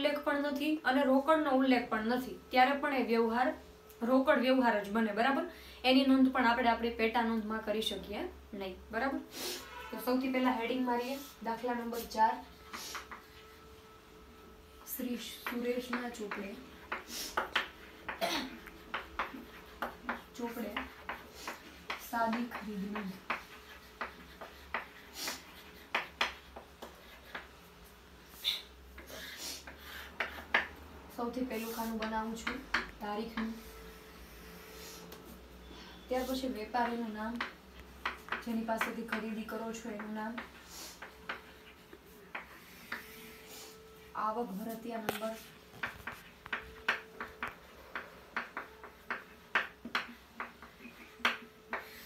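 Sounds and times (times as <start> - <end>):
chalk tapping and scratching: 9.6 - 13.6, 15.0 - 35.5, 36.1 - 52.0.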